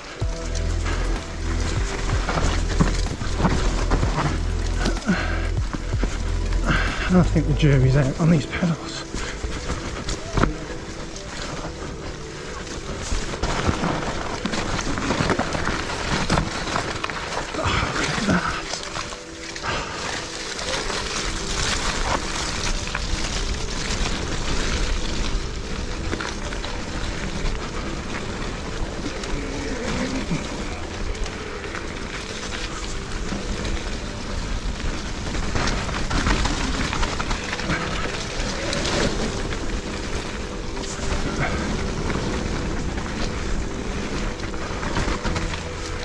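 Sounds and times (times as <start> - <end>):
tyres rumbling on dirt: 0.0 - 46.0
bike knocking and rattling: 8.5 - 46.0.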